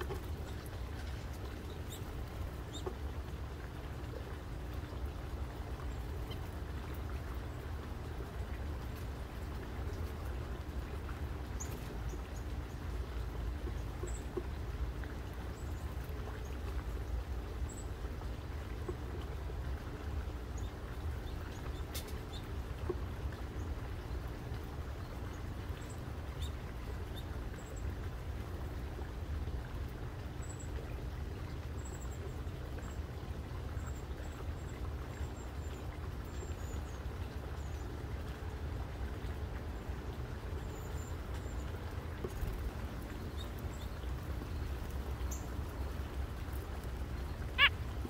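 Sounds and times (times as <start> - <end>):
faint bird chirps: 47.5 - 47.8.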